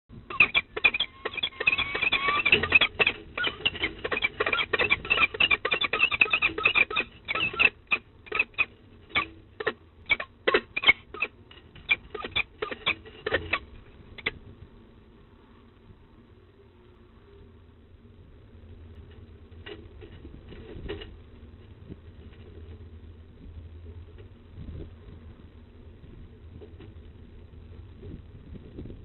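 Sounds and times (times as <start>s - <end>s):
falcon chipping calls: 0.3s - 9.3s, 10.1s - 13.6s.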